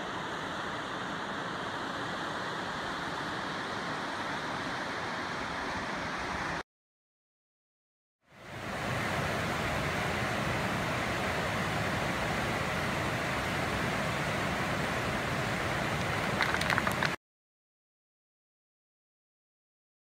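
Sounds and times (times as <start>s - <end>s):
river rapids rushing: 8.6s - 17.2s.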